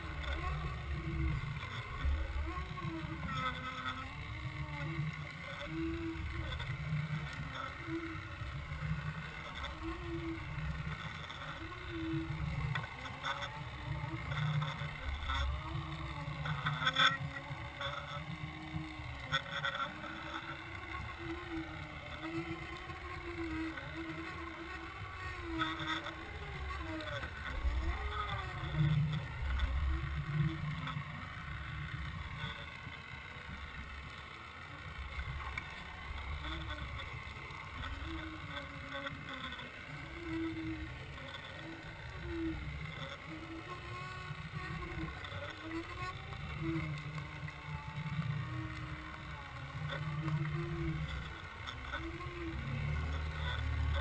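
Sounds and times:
boat motor droning underwater: 0.0s - 54.0s.

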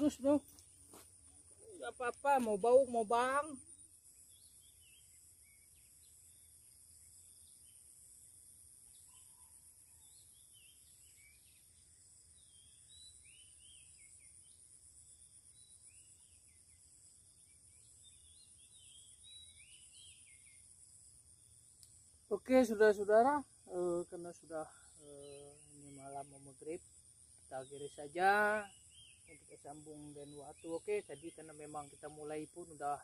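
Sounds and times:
bird chirps: 8.9s - 20.9s.

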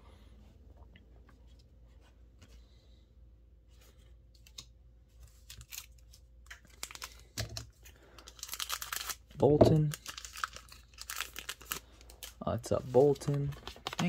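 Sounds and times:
foil pack crinkling: 5.3s - 14.0s.

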